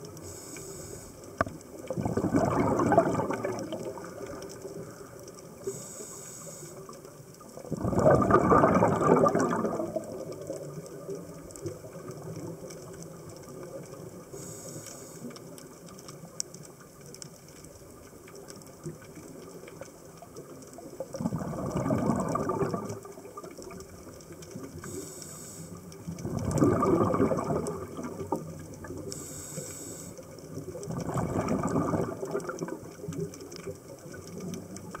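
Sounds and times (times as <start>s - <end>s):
exhaled bubbles underwater: 0.0s - 6.2s, 6.8s - 35.0s
regulator inhalation hiss: 0.2s - 1.4s, 5.6s - 7.0s, 14.3s - 15.4s, 24.8s - 25.9s, 29.1s - 30.3s.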